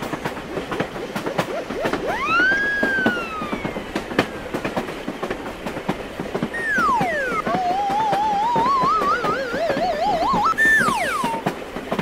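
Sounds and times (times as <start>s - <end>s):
cartoon train wheel clicks: 0.0s - 12.0s
whistle-like tone: 0.8s - 4.3s, 6.5s - 11.5s.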